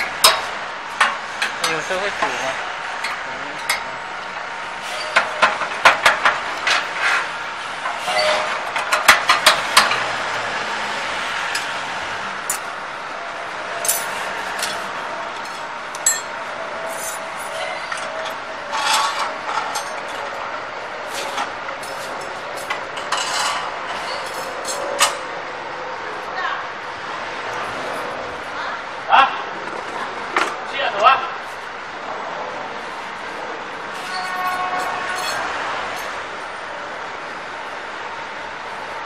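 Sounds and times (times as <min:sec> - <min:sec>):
metal parts clinking and knocking: 0:13.8 - 0:14.8, 0:34.1 - 0:36.1.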